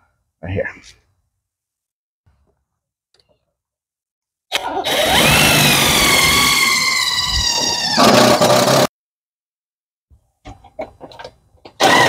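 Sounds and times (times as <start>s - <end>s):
drill whining into sheet metal: 4.8s - 8.9s, 11.8s - 12.0s.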